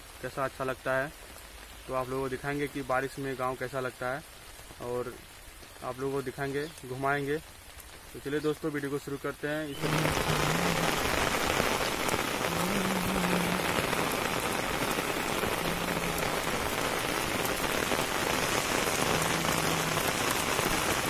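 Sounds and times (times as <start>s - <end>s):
steady rain on concrete: 0.0s - 21.0s.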